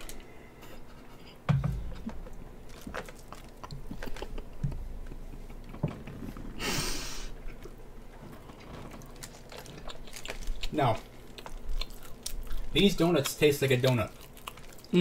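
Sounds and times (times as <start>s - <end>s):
chewing doughnut: 2.6s - 5.8s, 7.4s - 15.0s.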